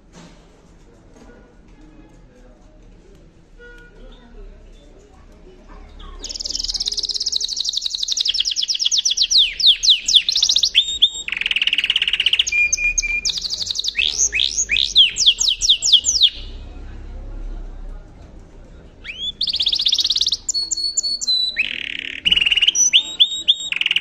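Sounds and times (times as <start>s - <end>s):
canary singing trills: 5.9s - 16.7s, 19.0s - 24.0s.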